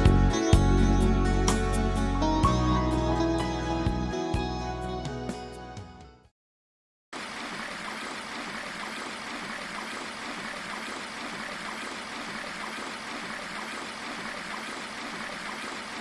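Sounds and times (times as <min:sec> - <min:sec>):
water pouring into stone tank: 0:07.2 - 0:16.0.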